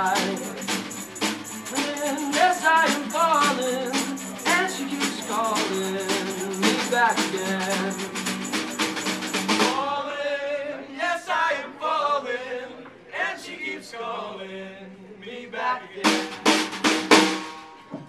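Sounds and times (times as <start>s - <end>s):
men singing: 0.0s - 8.8s, 9.5s - 16.6s
drum kit: 0.0s - 9.8s, 16.0s - 17.8s
strummed acoustic guitars: 0.0s - 9.9s.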